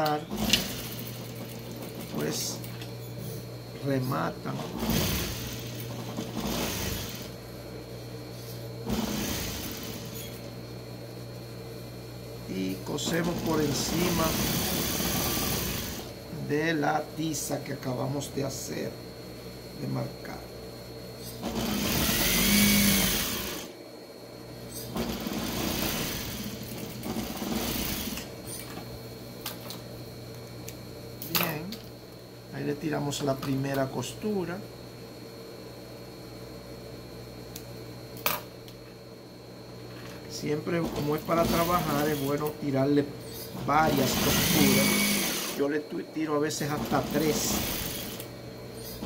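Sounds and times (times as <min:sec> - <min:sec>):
sewing machine stitching: 0:00.3 - 0:02.1, 0:04.6 - 0:07.3, 0:08.9 - 0:10.2, 0:21.4 - 0:23.6, 0:24.9 - 0:28.3, 0:43.9 - 0:45.6, 0:46.8 - 0:48.2
sewing machine motor humming: 0:00.3 - 0:02.6, 0:04.5 - 0:07.4, 0:08.8 - 0:10.4, 0:13.0 - 0:16.2, 0:21.4 - 0:23.7, 0:24.9 - 0:28.4, 0:40.9 - 0:42.5, 0:43.7 - 0:45.6, 0:46.8 - 0:48.3.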